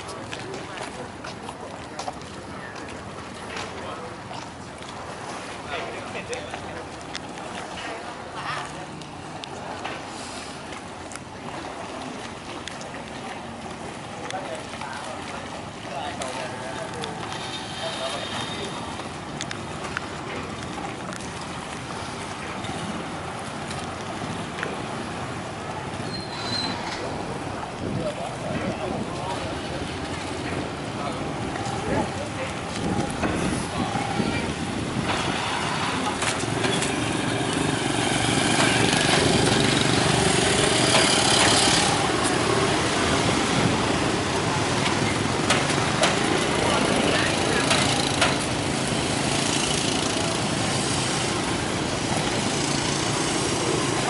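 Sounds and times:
scooter engines passing by: 0:15.9 - 0:21.0, 0:21.6 - 0:54.0.

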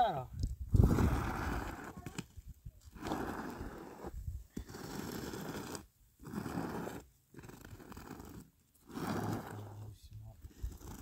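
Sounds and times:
squeegee scraping across concrete: 0:00.8 - 0:11.0.

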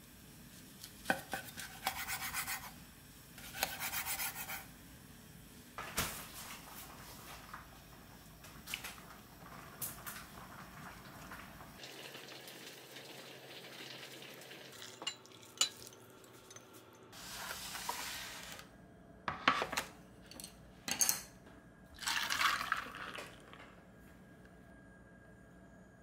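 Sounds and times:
liquid being poured: 0:11.1 - 0:16.6, 0:22.0 - 0:23.6.

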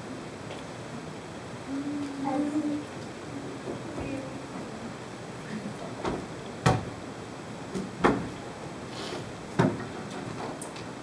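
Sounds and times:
room noise hiss: 0:00.0 - 0:11.0.

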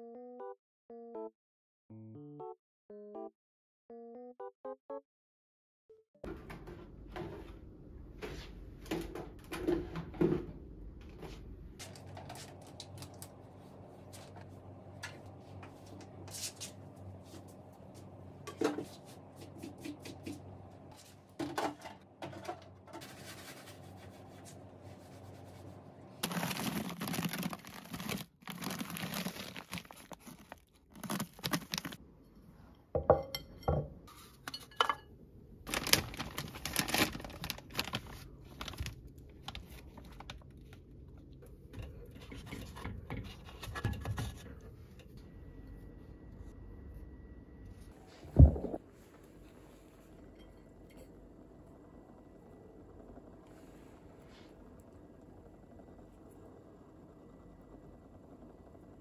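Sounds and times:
plastic packaging crinkling: 0:26.2 - 0:32.0, 0:35.7 - 0:40.8.

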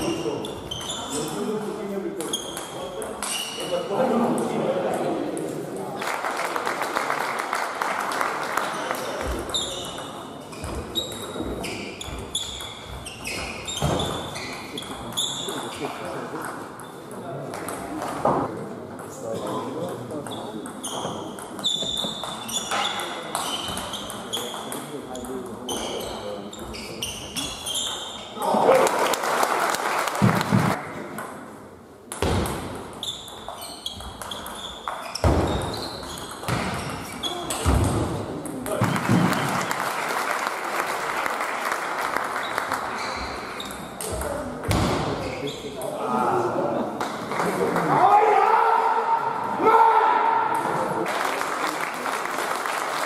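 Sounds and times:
short high squeaks: 0:00.0 - 0:01.4, 0:33.0 - 0:37.6
shoes squeaking on hall floor: 0:00.0 - 0:04.1, 0:08.6 - 0:28.5, 0:32.4 - 0:39.8, 0:42.4 - 0:46.2.

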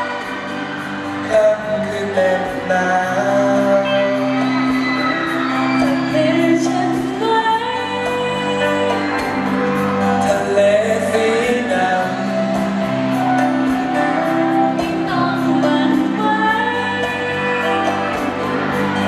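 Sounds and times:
amplified band playing: 0:00.0 - 0:19.0
man singing: 0:01.2 - 0:04.8, 0:10.1 - 0:14.2
woman singing: 0:05.8 - 0:09.6, 0:14.5 - 0:19.0.

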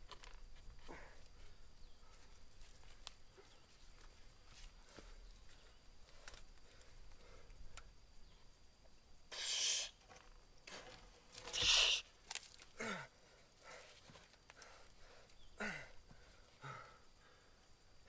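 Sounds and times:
person breathing hard: 0:12.8 - 0:17.7.

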